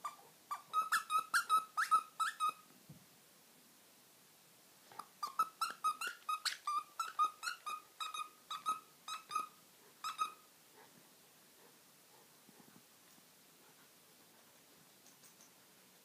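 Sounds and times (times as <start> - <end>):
dog toy squeaking: 0.0 - 2.6, 5.2 - 10.4.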